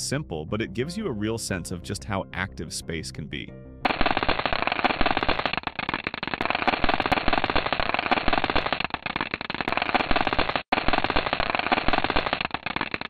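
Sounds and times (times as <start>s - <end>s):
rapid crackle of sharp clicks: 3.8s - 13.0s.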